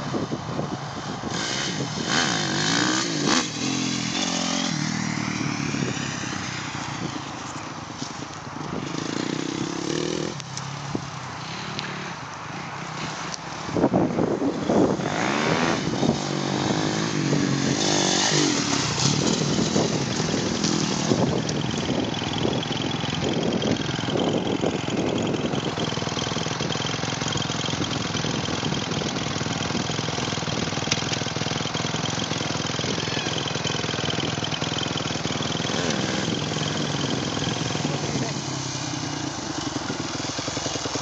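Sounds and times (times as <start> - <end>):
dirt bike engine revving: 1.2 - 7.2, 8.8 - 10.4, 14.4 - 41.0.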